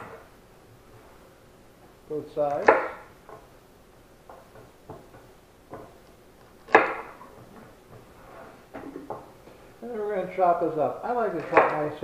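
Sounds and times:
knife chopping celery on wooden board: 2.5s - 3.5s, 6.6s - 8.2s.

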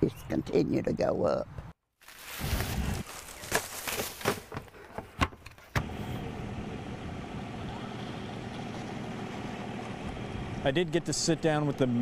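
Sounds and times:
low engine hum: 5.8s - 12.0s.

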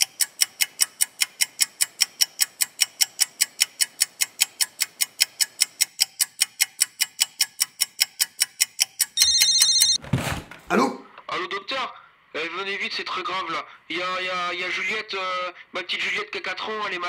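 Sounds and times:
clock ticking quickly: 0.0s - 10.0s
telephone ringing: 9.2s - 10.0s.

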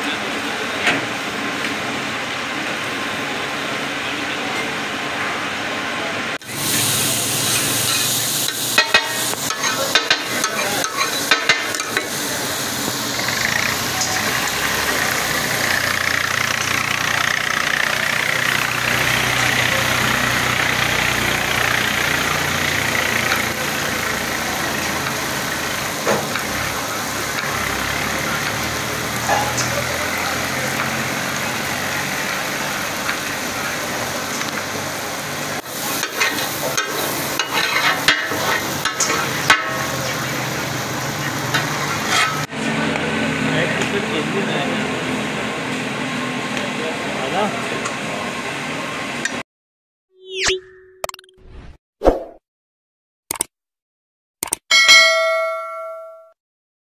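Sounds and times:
meat sizzling on a griddle: 6.4s - 42.5s
steel spatulas clacking: 8.8s - 12.1s, 36.0s - 39.9s, 41.6s - 42.5s.

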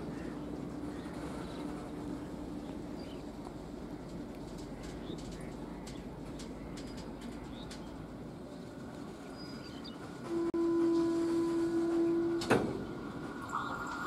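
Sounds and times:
low rumble of approaching train: 0.0s - 14.0s
locomotive horn blast: 10.3s - 13.6s.

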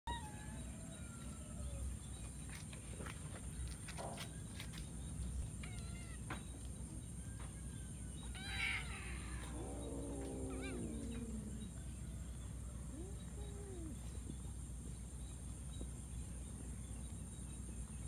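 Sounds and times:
cats meowing: 5.5s - 6.4s, 8.2s - 11.8s.

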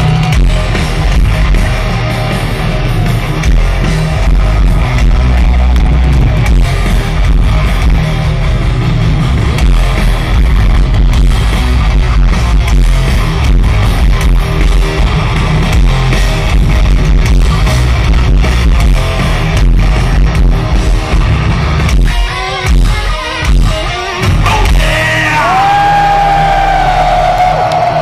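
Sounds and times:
heavy metal band playing live: 0.0s - 28.0s.

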